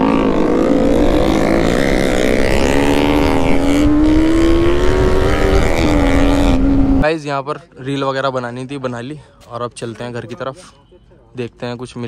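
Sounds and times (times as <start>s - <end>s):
motorcycle engine running: 0.0s - 7.0s.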